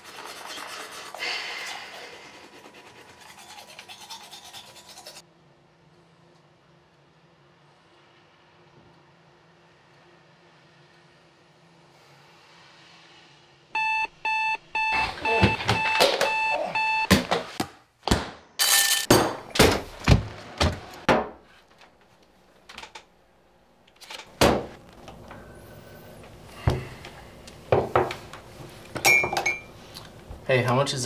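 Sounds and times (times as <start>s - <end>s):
alarm clock beeping: 13.8s - 17.1s.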